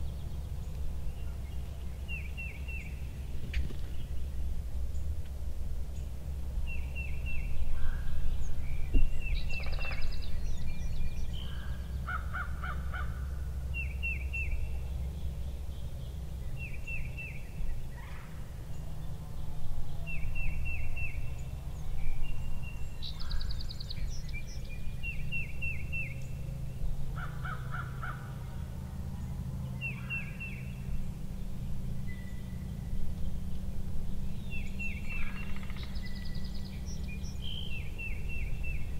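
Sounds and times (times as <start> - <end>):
songbird singing: 0.0 - 38.9.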